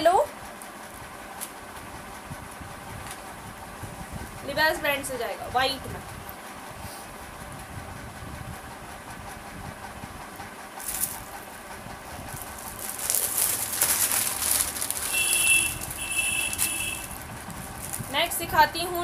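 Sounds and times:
clothes rustling: 0:12.3 - 0:18.2.

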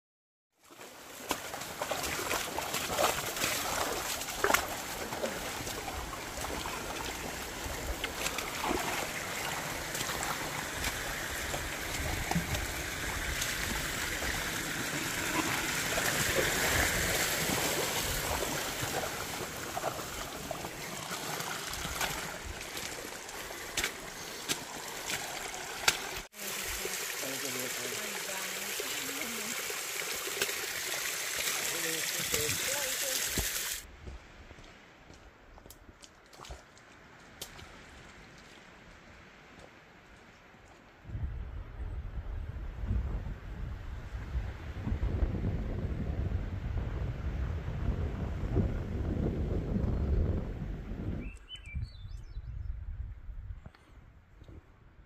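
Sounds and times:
splashing footsteps: 0:00.7 - 0:29.6, 0:30.3 - 0:38.8
rainwater trickling over rocks: 0:01.2 - 0:33.9.

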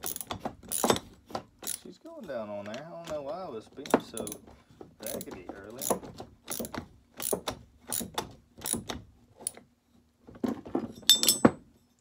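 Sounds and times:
ratchet wrench clicking: 0:00.0 - 0:01.0, 0:01.6 - 0:01.9, 0:04.2 - 0:04.4, 0:05.0 - 0:09.6
metallic clink: 0:11.0 - 0:11.6.

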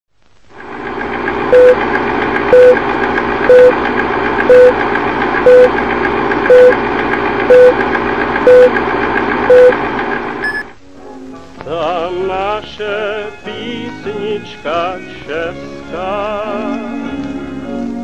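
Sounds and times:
film projector whirring and crackling: 0:00.2 - 0:10.5
short steady beeps: 0:01.5 - 0:01.8, 0:02.5 - 0:02.8, 0:03.5 - 0:03.8, 0:04.5 - 0:04.8, 0:05.4 - 0:05.8, 0:06.5 - 0:06.8, 0:07.5 - 0:07.8, 0:08.5 - 0:08.8, 0:09.5 - 0:09.8, 0:10.4 - 0:10.7.

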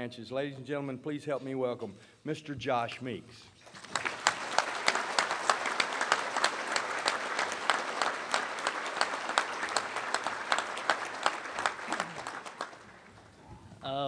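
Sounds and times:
audience applauding: 0:03.6 - 0:13.4
sharp claps from close by: 0:03.7 - 0:13.4.

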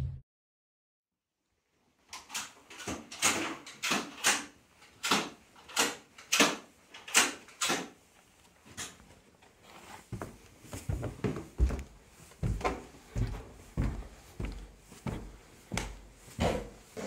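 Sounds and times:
footsteps on carpet: 0:09.6 - 0:17.0.

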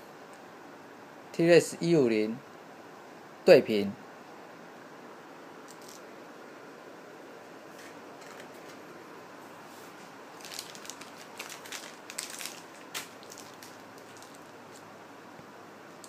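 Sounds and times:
room hiss: 0:00.0 - 0:16.0
plastic crinkling and clicks: 0:10.4 - 0:14.8.

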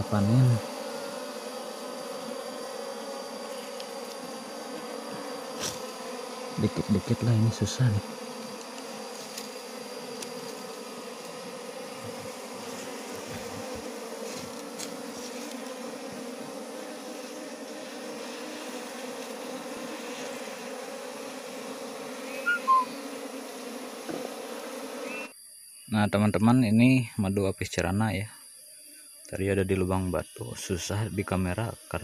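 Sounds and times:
honeybees buzzing: 0:00.0 - 0:25.4.

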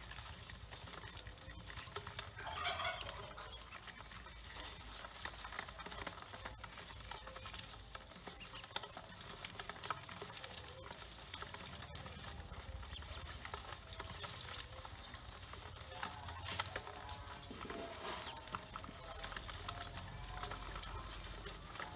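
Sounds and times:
ducklings peeping softly: 0:00.0 - 0:21.9
feet scratching on metal: 0:15.8 - 0:20.0.

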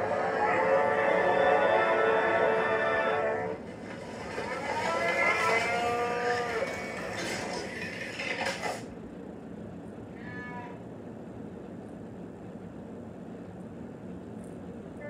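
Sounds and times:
moo noisemaker: 0:00.0 - 0:03.5, 0:04.2 - 0:07.5, 0:10.2 - 0:10.8.

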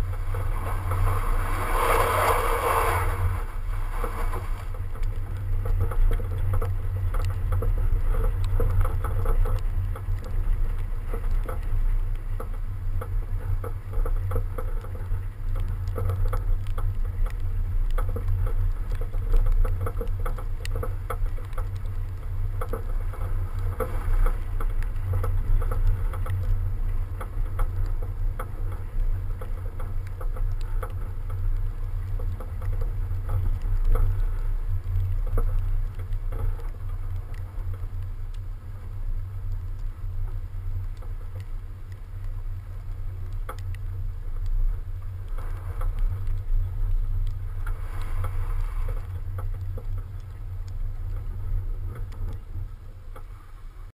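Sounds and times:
snow and ice ticking on car body: 0:00.0 - 0:53.9
wind and tyre rumble: 0:00.0 - 0:53.9.

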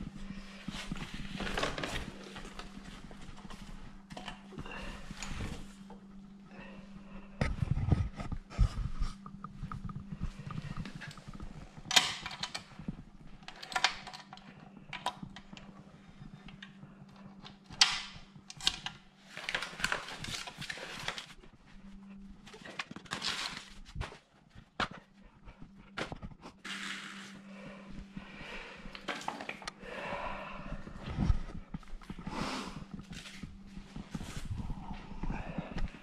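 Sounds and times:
steady low hum: 0:00.0 - 0:36.0
packing rustling and scraping: 0:00.6 - 0:05.8, 0:22.4 - 0:24.3.

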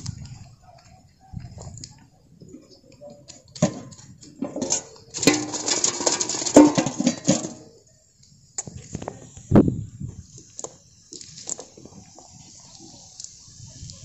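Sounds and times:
net weights clinking and rattling: 0:04.4 - 0:07.7.

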